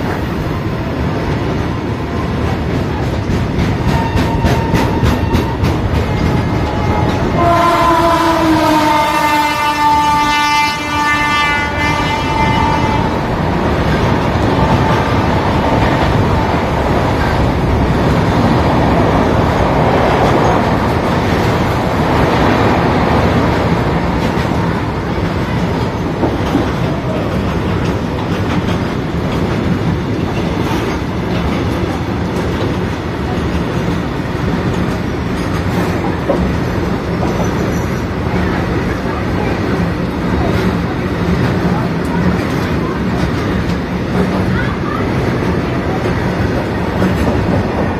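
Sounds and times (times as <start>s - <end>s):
freight train wheels rumbling: 0.0s - 47.9s
train horn: 3.9s - 5.6s, 6.7s - 13.3s.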